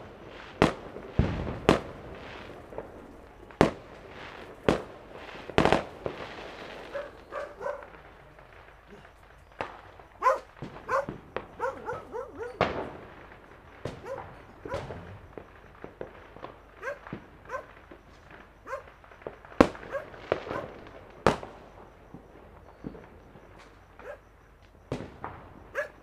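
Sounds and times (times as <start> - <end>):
loud sharp cracks: 0.0 - 21.7
fireworks bangs: 0.0 - 26.0
dog barking: 6.9 - 8.0, 10.2 - 12.7, 14.0 - 15.0, 16.8 - 17.8, 18.6 - 19.0, 19.8 - 20.8, 24.0 - 24.3, 25.7 - 26.0.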